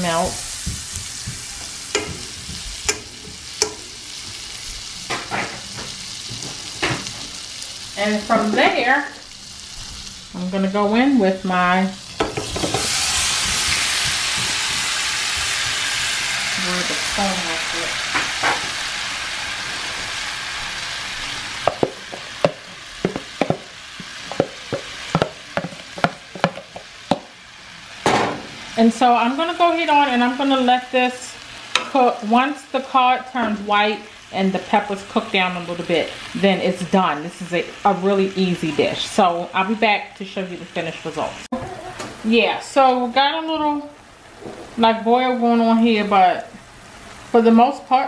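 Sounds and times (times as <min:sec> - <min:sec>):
butter sizzling in frying pan: 0:00.0 - 0:48.0
vegetables clacking into pan: 0:00.5 - 0:07.4, 0:12.2 - 0:15.8, 0:21.6 - 0:27.4.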